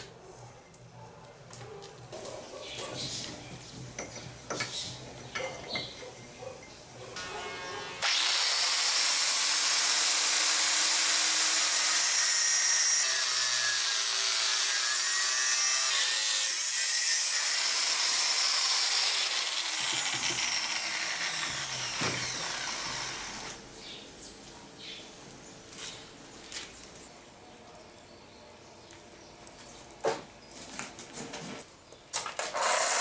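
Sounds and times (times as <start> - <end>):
angle grinder cutting steel: 7.2 - 23.6, 32.4 - 33.0.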